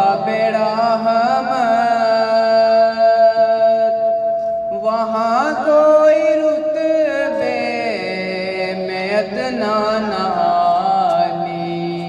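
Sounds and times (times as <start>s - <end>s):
man singing long held notes: 0.0s - 12.0s.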